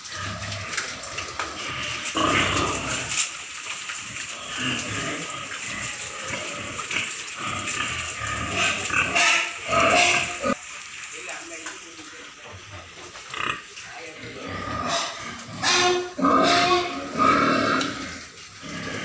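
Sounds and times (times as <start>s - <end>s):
piglets grunting: 14.3s - 19.0s.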